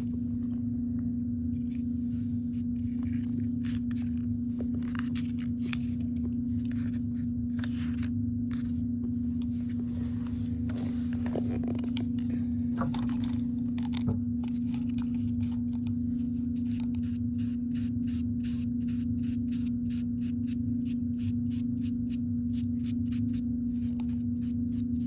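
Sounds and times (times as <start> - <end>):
steady low hum: 0.0 - 25.0
paper and cardboard rustling: 2.5 - 12.2, 12.8 - 17.0.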